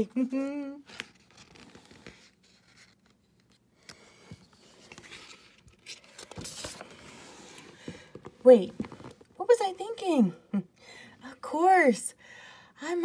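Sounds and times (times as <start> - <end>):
page turning rustle: 0.8 - 9.3.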